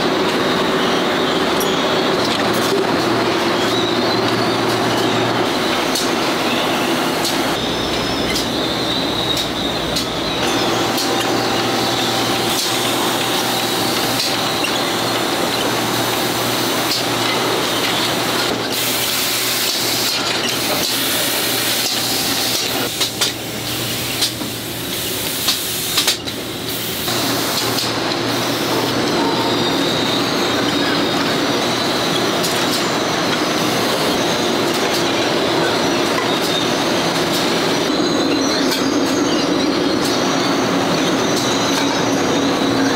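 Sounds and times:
mechanical hum: 0.0s - 42.9s.

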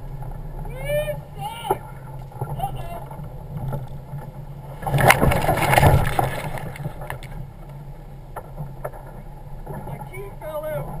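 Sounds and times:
car engine running: 0.0s - 11.0s
vehicle crashing onto its side: 4.8s - 7.3s.

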